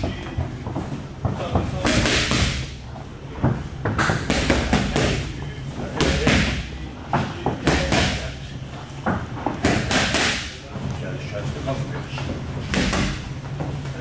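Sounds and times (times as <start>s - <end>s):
boxing gloves smacking mitts: 0.0s - 2.8s, 3.4s - 5.4s, 9.5s - 10.6s, 12.6s - 13.4s.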